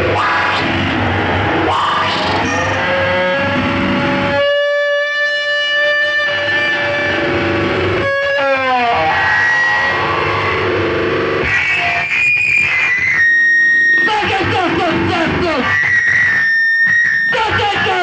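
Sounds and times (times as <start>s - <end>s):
electronic pitched drone: 0.0s - 4.4s
high whistling feedback tones: 2.2s - 2.8s.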